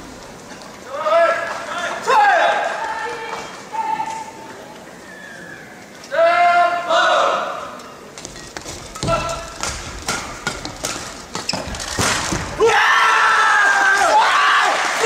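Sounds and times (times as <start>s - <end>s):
sneakers squeaking on court: 8.2s - 12.5s
shouting and cheering: 12.6s - 15.0s.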